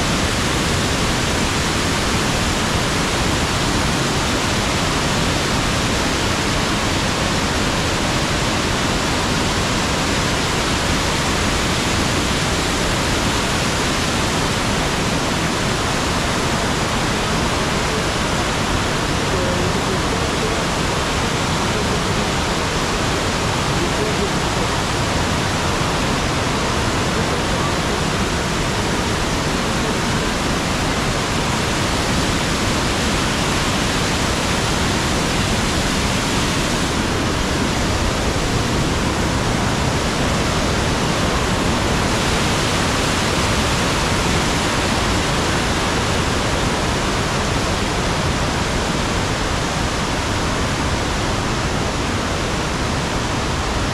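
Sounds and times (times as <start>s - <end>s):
waterfall rushing: 0.0s - 53.9s.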